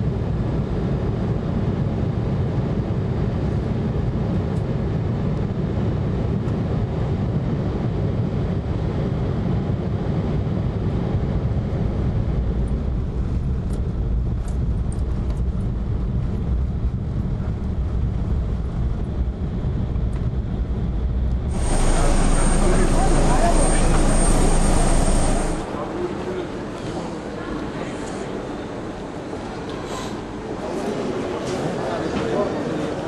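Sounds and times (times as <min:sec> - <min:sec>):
airliner engine rumble: 0:00.0 - 0:33.0
rushing air: 0:21.5 - 0:25.9.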